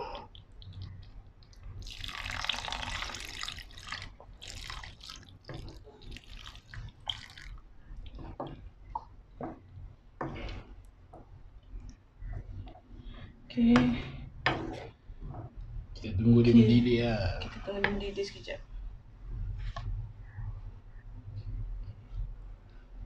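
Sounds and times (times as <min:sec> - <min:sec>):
water pouring into a pan: 0:01.8 - 0:07.6.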